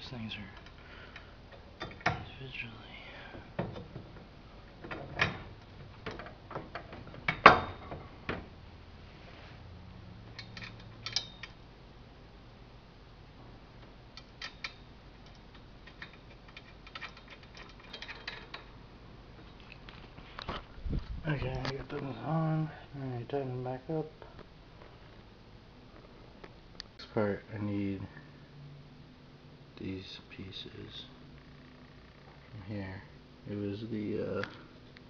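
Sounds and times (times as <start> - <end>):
bolts clinking against metal bracket: 1.5 - 2.3, 4.8 - 8.5, 10.3 - 11.6, 14.2 - 18.7.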